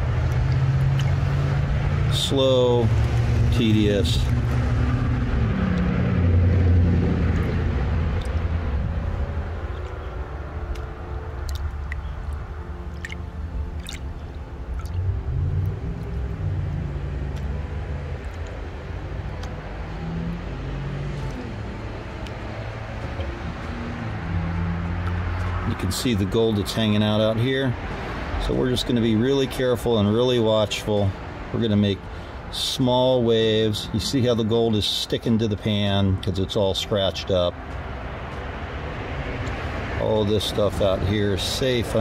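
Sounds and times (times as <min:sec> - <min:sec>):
low motor rumble: 0:00.0 - 0:34.8
water sloshing and trickling: 0:00.1 - 0:02.1, 0:09.6 - 0:16.4.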